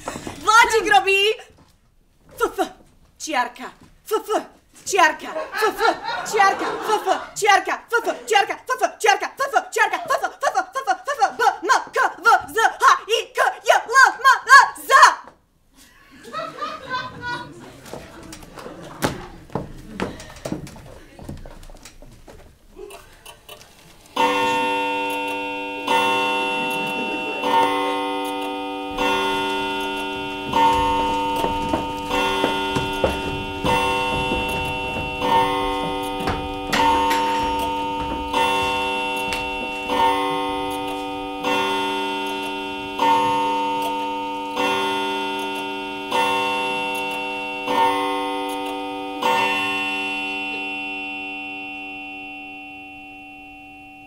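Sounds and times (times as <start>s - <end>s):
clock chime strokes: 24.2s - 54.0s.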